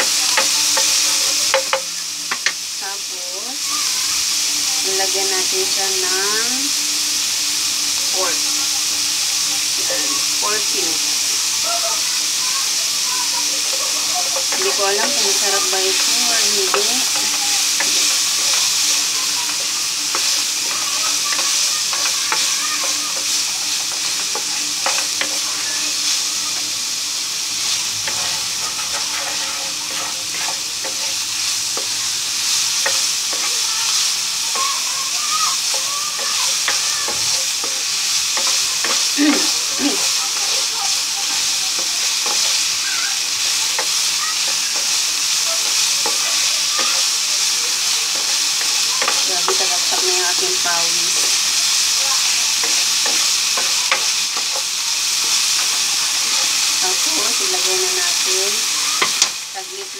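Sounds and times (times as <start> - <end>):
meat sizzling in a pan: 0.0 - 59.9
wooden spatula scraping a pan: 13.2 - 26.6, 27.5 - 34.7, 35.7 - 59.9.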